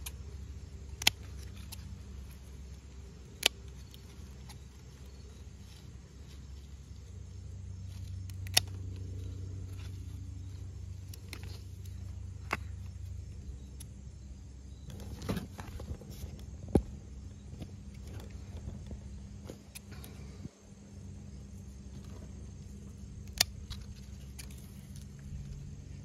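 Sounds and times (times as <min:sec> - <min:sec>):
scissors snipping: 0:00.9 - 0:02.4, 0:03.3 - 0:04.6, 0:08.0 - 0:09.1, 0:23.2 - 0:25.1.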